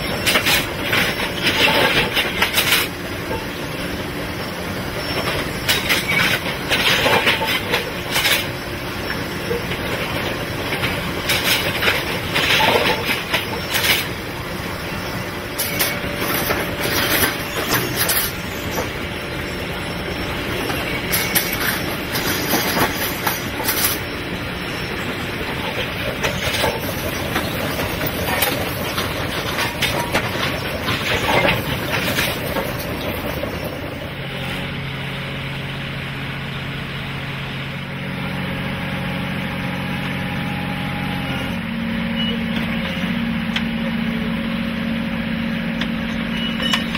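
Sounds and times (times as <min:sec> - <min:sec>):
steady machinery noise: 0:00.0 - 0:46.9
metallic clanking: 0:15.6 - 0:33.8.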